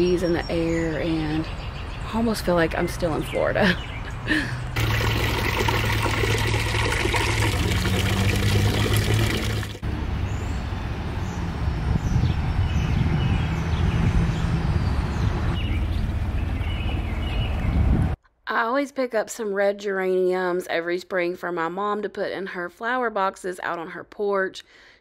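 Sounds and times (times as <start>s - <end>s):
rushing noise with low rumble: 9.8s - 18.2s.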